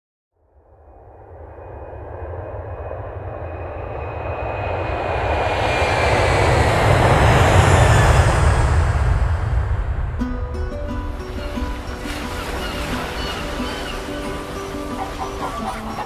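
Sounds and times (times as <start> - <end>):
jet engine roar: 1.1 - 10.3.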